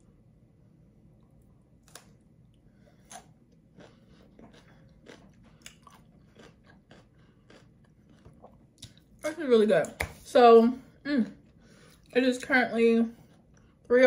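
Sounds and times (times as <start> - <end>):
person chewing cucumber: 1.1 - 9.2.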